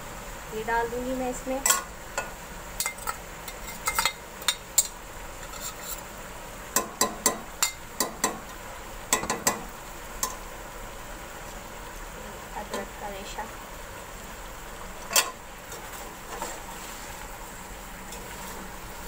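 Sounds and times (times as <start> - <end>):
faint sizzle: 0.0 - 19.0
metal ladle clinking in pot: 1.6 - 5.8.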